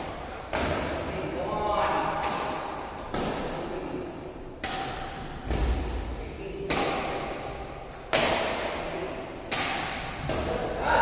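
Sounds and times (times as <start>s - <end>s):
badminton racket hitting shuttlecock: 2.1s - 10.8s.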